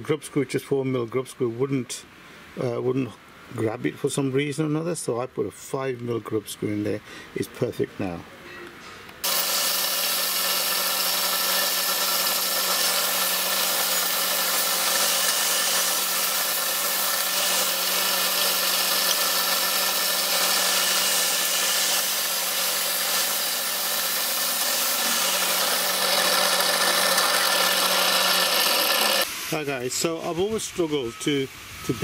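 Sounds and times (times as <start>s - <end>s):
pillar drill motor humming: 9.2s - 29.3s.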